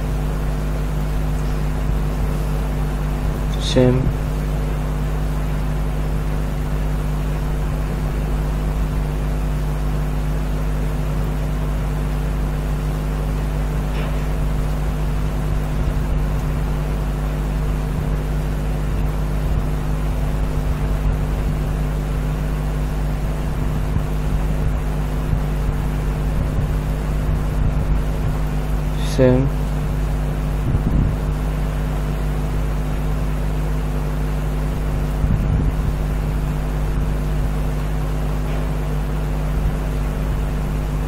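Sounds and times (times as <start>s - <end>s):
constant hiss: 0.0s - 41.0s
low hum: 0.0s - 41.0s.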